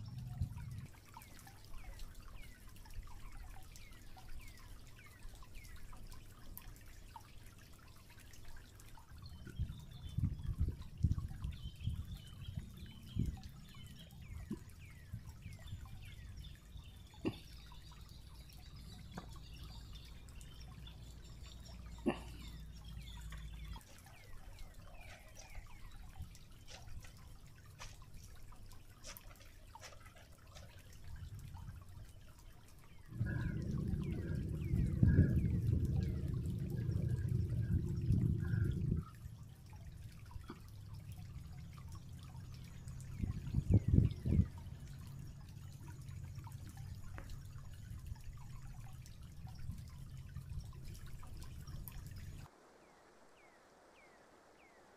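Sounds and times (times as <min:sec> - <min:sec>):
stream water trickling over rocks: 0:00.0 - 0:54.9
low rumble: 0:33.1 - 0:39.5.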